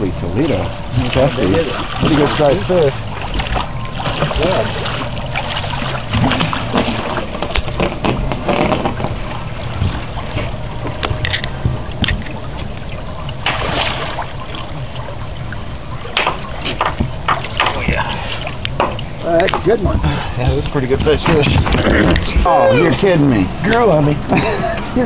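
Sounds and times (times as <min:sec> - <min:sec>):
low rumble of wind and boat: 0:00.0 - 0:25.0
fish splashing water: 0:00.6 - 0:19.2
knocks: 0:16.2 - 0:17.9, 0:18.8 - 0:19.7.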